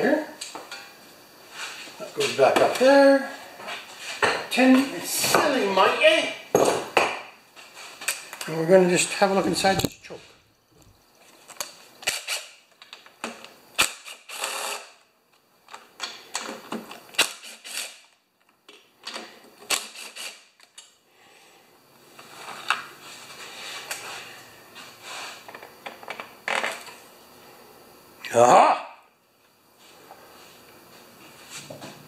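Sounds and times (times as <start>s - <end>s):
cordless drill running: 14.0s - 14.9s.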